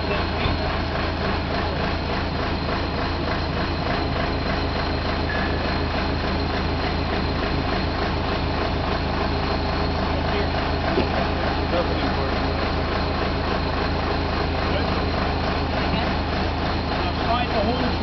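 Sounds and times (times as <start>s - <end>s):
drill rig engine running: 0.0s - 18.0s.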